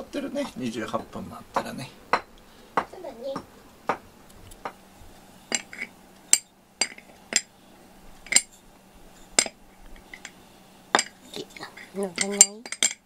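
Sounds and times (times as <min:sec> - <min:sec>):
spoon tapping ceramic dishes: 0:05.5 - 0:07.5, 0:08.3 - 0:08.6, 0:11.0 - 0:11.2, 0:12.1 - 0:13.0.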